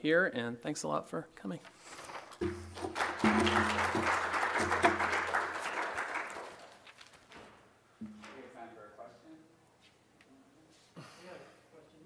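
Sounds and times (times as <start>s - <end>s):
audience applauding: 2.4s - 6.9s.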